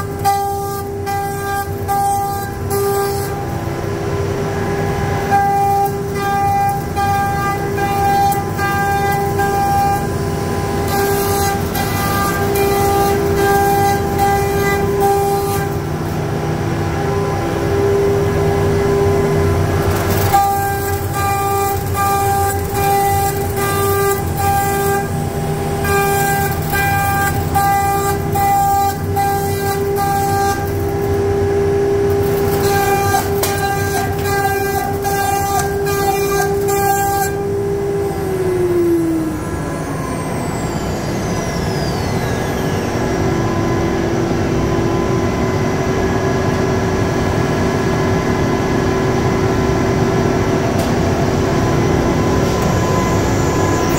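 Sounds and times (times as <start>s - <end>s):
router spindle whining: 4.5s - 45.3s, 51.8s - 53.9s.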